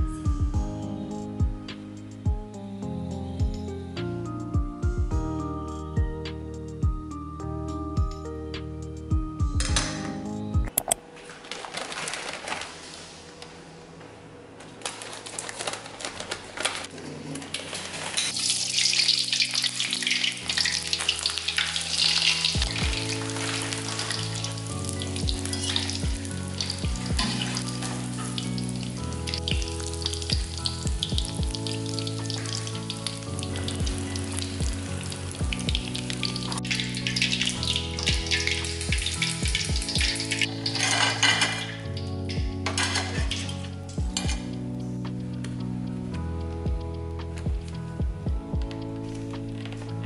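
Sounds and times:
background music: 0.0 - 50.0
shrimp deep-frying in oil: 17.6 - 44.3.

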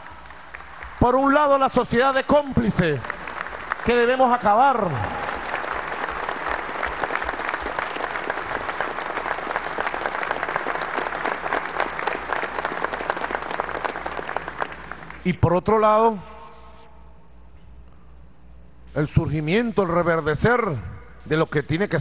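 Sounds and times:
audience applauding: 0.0 - 15.3.

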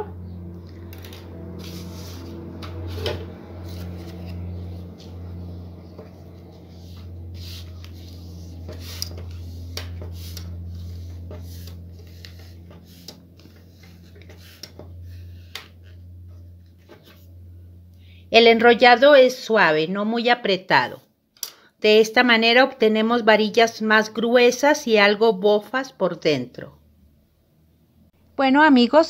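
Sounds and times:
low hum: 0.0 - 20.0
newspaper rustling and crackling: 0.8 - 16.0.

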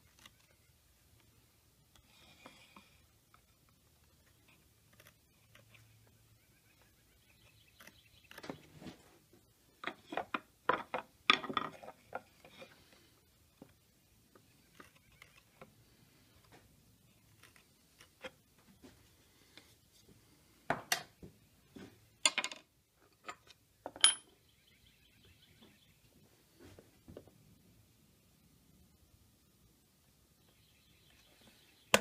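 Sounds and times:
metal point scratching wood: 2.4 - 9.0, 14.4 - 16.0, 17.1 - 18.4
wooden knocks and clacks: 9.8 - 12.3.

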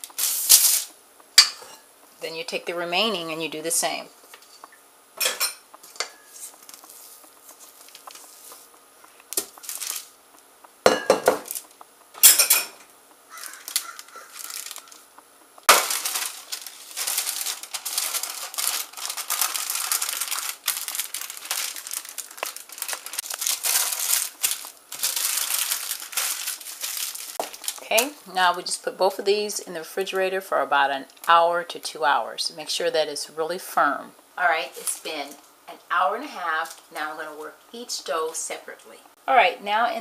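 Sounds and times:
wax paper crinkling: 5.8 - 10.2, 11.4 - 11.8, 13.3 - 28.3
bowl and utensils clinking: 12.2 - 12.8.

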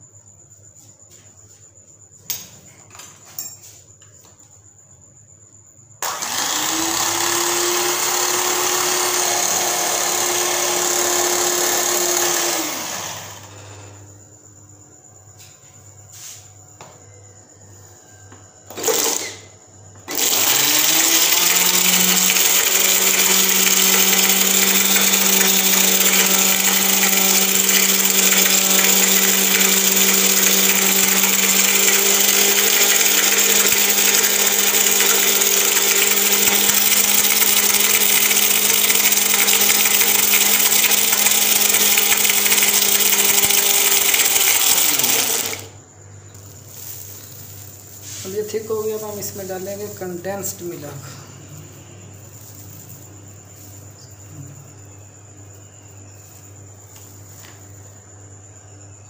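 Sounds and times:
electric mixer motor: 6.0 - 13.7, 18.7 - 19.4, 20.1 - 45.8, 46.7 - 51.0.

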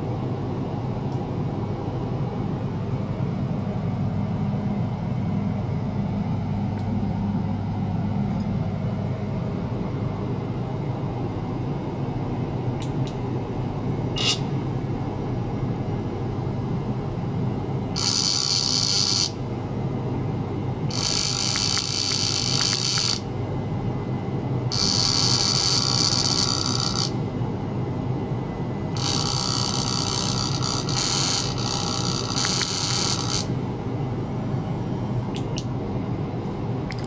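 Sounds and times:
steady low hum: 0.0 - 37.0
high-pitched electronic buzz: 14.2 - 14.5, 17.9 - 19.5, 20.9 - 23.3, 24.7 - 27.3, 28.8 - 33.6.

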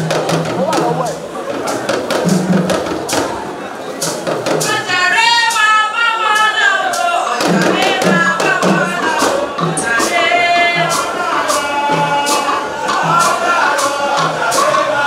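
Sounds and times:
sharp percussion hits: 0.0 - 15.0
steady drum beat: 0.0 - 15.0
person singing: 4.6 - 15.0.

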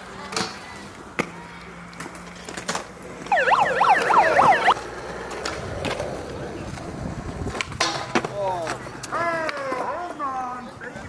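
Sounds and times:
megaphone siren sweeping: 3.3 - 4.8
skateboard clacks on concrete: 6.7 - 10.3.

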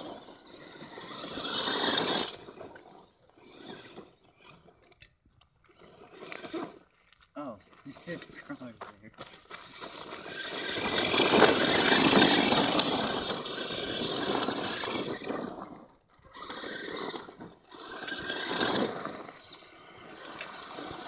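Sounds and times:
electric motor whine: 0.0 - 2.8, 9.6 - 21.0
tyres crunching on gravel: 0.0 - 21.0.

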